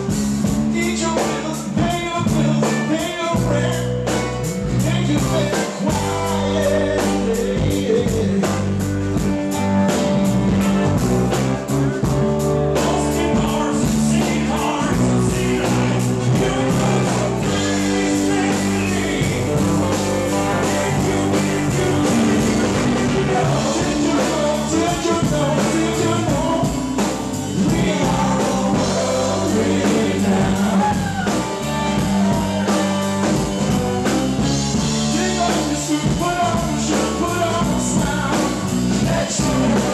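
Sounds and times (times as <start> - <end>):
lead singer singing: 0.0 - 9.6, 12.4 - 39.9
live rock band playing: 0.0 - 39.9.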